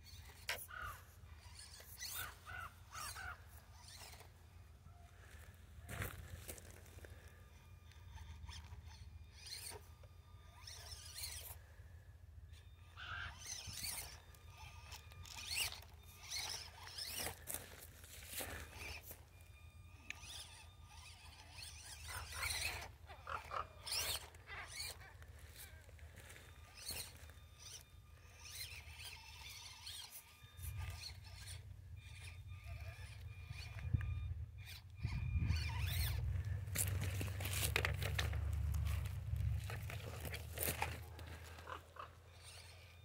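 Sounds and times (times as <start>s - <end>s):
small electric motor whining: 0.0s - 43.0s
tires crunching over gravel: 5.1s - 7.4s, 14.8s - 19.2s, 21.6s - 27.8s, 29.8s - 42.0s.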